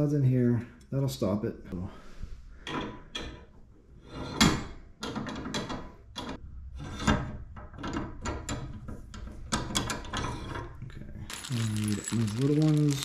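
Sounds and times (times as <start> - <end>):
metal clicks and knocks: 4.4 - 10.8.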